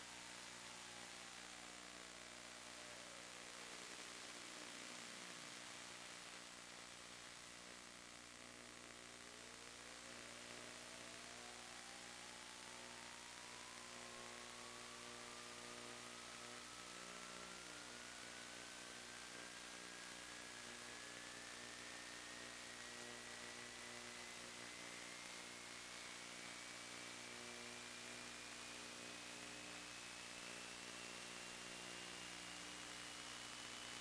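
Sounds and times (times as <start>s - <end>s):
static hiss and electrical hum: 0.0s - 34.0s.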